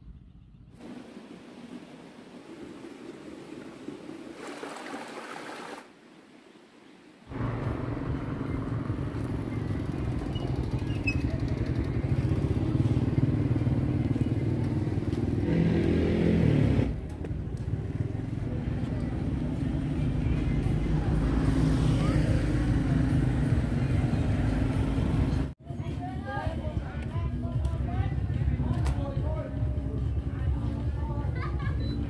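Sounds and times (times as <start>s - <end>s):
motorbike engines rumbling: 7.3s - 25.6s.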